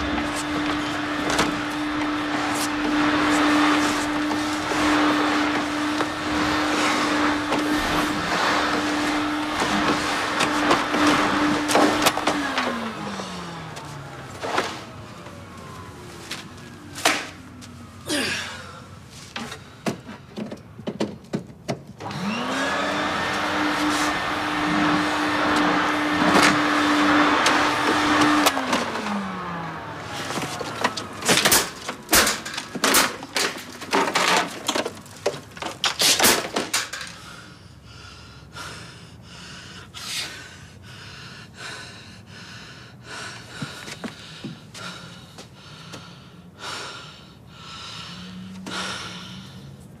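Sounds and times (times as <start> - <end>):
vacuum cleaner motor running: 0.0 - 18.8, 22.0 - 37.2.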